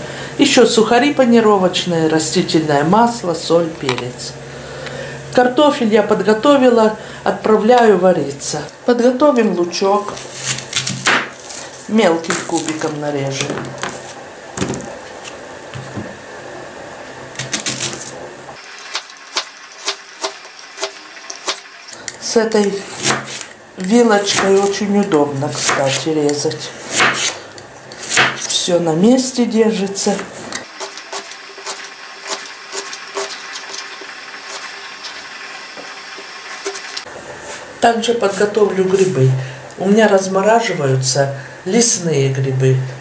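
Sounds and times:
knife chopping on cutting board: 10.5 - 11.4, 22.8 - 23.4, 24.2 - 24.8, 25.5 - 26.1, 26.9 - 27.4, 28.0 - 28.5
knife slicing onion on cutting board: 18.8 - 21.7, 22.6 - 28.6, 30.0 - 34.8, 36.4 - 37.0.

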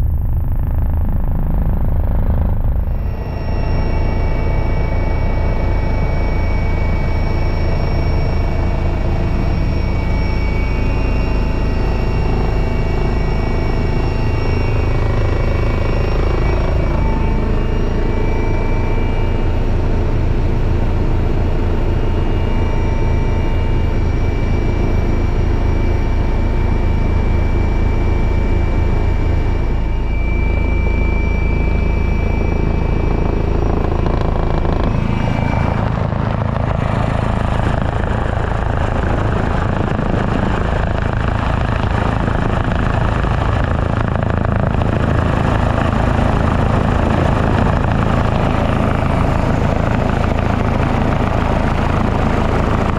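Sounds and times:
helicopter rotor beat: 0.0 - 52.9
turbine whine: 0.0 - 52.9.

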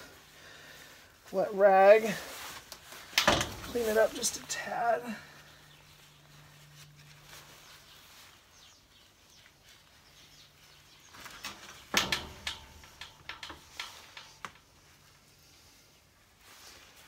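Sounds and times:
rag wiping rustle: 1.2 - 11.8.

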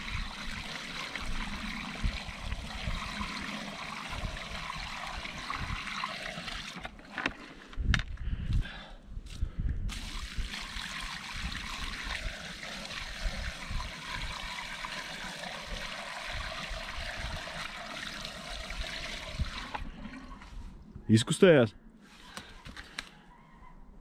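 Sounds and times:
water pouring into pipe: 0.0 - 7.5, 9.9 - 20.5.

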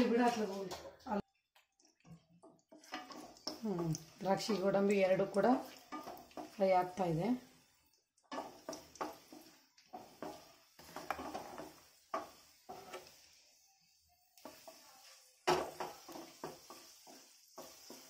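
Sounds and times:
nuts frying sizzle: 0.0 - 18.0
wooden spatula knocking on pan: 8.3 - 13.0, 15.4 - 18.0.

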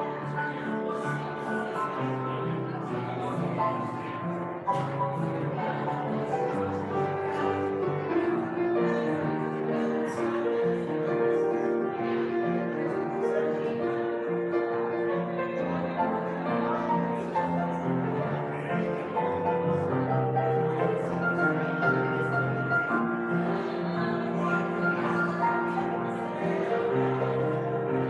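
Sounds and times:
grand piano playing: 0.0 - 28.0.

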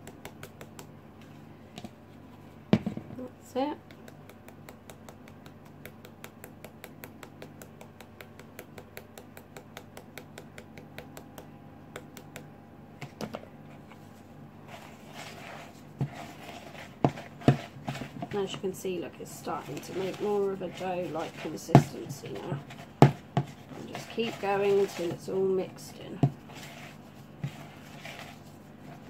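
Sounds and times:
wooden spoon stirring dough: 13.0 - 29.0
flour sieve tapping: 14.7 - 29.0.

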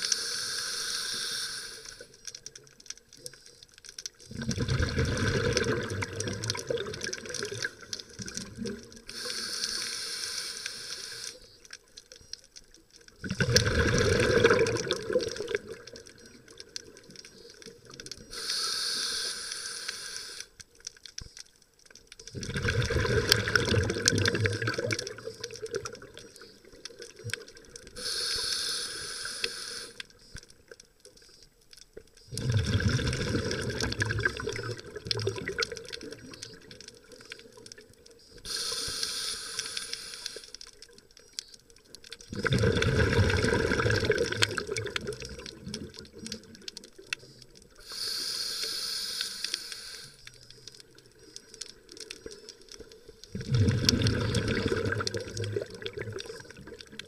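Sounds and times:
regulator hissing on inhale: 0.0 - 2.3, 9.0 - 11.7, 17.3 - 20.6, 27.9 - 30.4, 38.2 - 40.8, 47.2 - 50.5
bubbling exhaust underwater: 4.2 - 10.0, 13.2 - 18.9, 22.3 - 30.0, 32.2 - 39.9, 42.1 - 49.2, 50.2 - 57.0.

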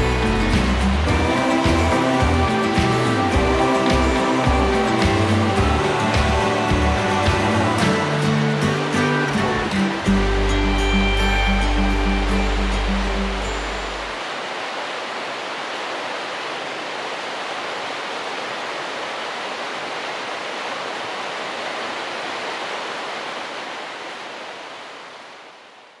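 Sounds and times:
river water rushing: 0.0 - 26.0.

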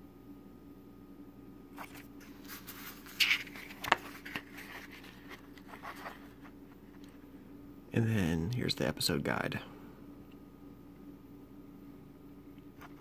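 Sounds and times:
paper pages rustling: 1.8 - 7.2, 12.8 - 13.0.

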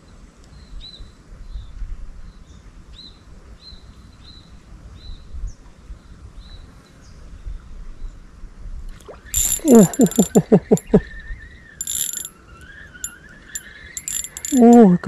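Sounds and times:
fishing reel drag clicking: 9.4 - 10.4, 11.8 - 12.3, 13.0 - 14.8.

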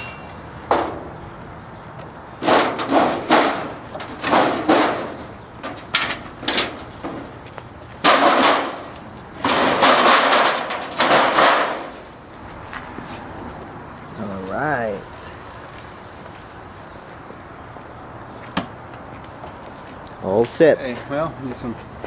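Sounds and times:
motorcycle scraping off metal crate: 8.0 - 12.1.

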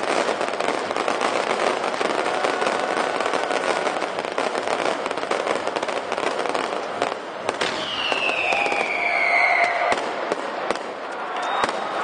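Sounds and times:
fireworks crackling and popping: 0.0 - 12.0
falling firework whistle: 7.6 - 10.2, 11.2 - 12.0.

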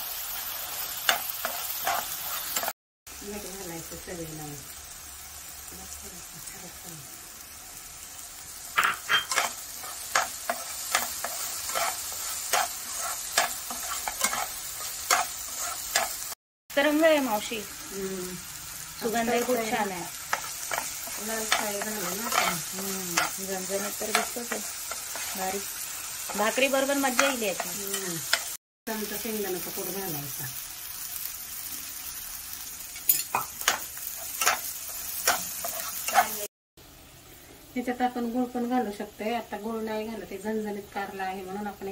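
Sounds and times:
paste sizzling in oil: 0.0 - 36.5
steel spatula scraping pan: 8.8 - 16.2.

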